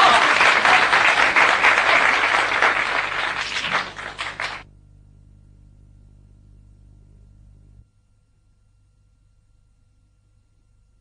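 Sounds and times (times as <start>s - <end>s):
audience applauding: 0.0s - 4.7s
faint low hum: 0.1s - 11.0s.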